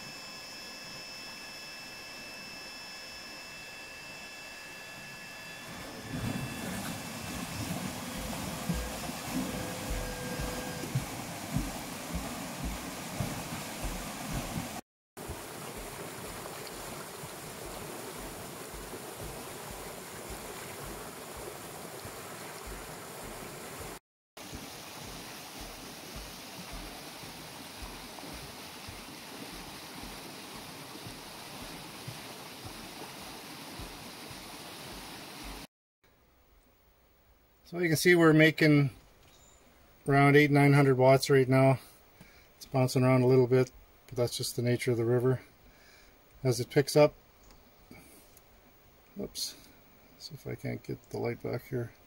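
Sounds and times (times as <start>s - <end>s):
faint steady hum: 0.0s - 23.8s
river water rushing and splashing: 5.7s - 35.7s
low thumps: 6.1s - 14.8s.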